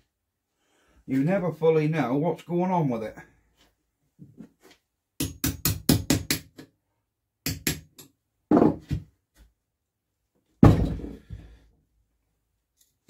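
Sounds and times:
dull knock and heavy thump: 10.6s - 11.5s.

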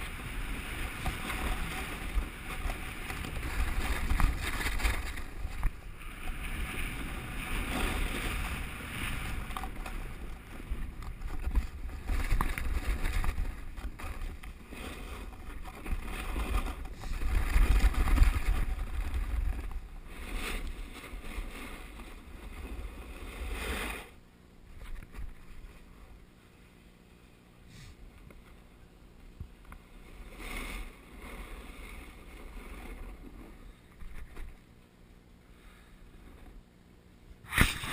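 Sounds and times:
wind buffeting microphone: 0.0s - 23.0s
sliding scrape over snow: 0.0s - 24.2s, 29.8s - 34.6s, 37.4s - 37.9s
faint breeze: 0.0s - 37.9s.

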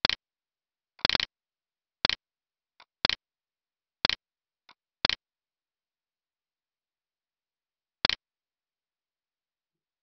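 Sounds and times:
sharp ticking clicks: 0.0s - 0.3s, 1.0s - 1.4s, 2.0s - 3.3s, 4.0s - 5.3s, 8.0s - 8.3s.

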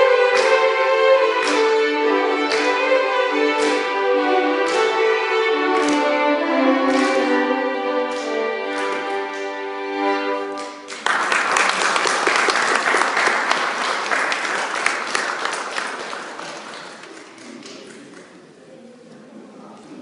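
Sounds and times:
violin ensemble holding a chord: 0.0s - 11.0s
audience applause: 10.6s - 18.4s.

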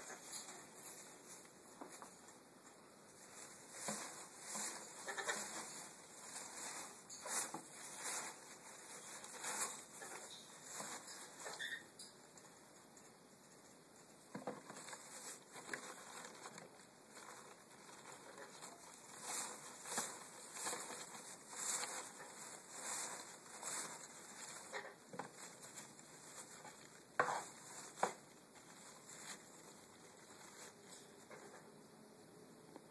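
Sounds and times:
nesting material rustling: 3.1s - 11.8s, 14.3s - 31.6s.

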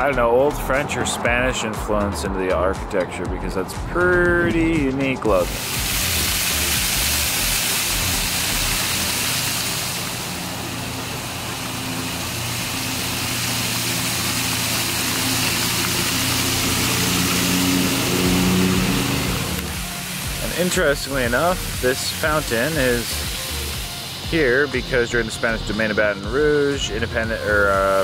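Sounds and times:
fountain water splashing: 5.3s - 28.0s
low mechanical hum: 6.0s - 22.4s.

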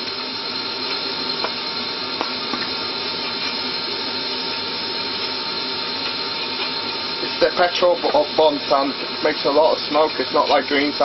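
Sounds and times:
extractor fan running: 0.0s - 11.0s.

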